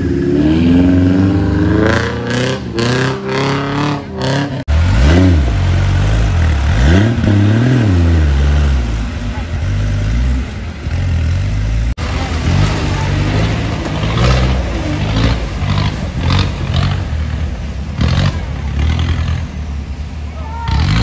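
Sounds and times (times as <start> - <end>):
off-road engine revving: 0.0 - 21.0.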